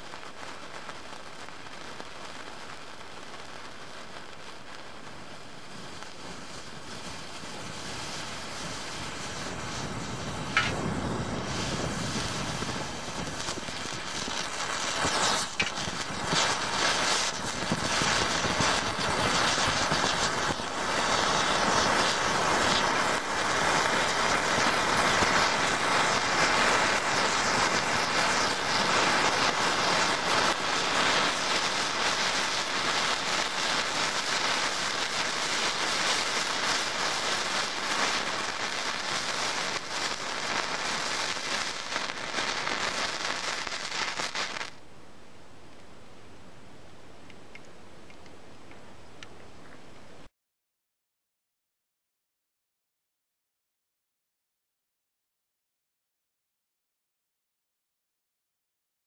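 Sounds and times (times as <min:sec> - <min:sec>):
thermite burning with hiss: 0:00.0 - 0:44.8.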